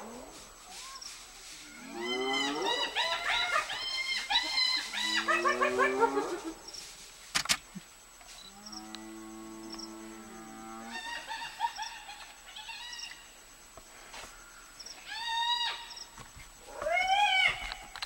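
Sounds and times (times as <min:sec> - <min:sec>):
long low animal call: 0:01.9 - 0:06.6
animal yelps: 0:02.0 - 0:06.5, 0:16.7 - 0:17.9.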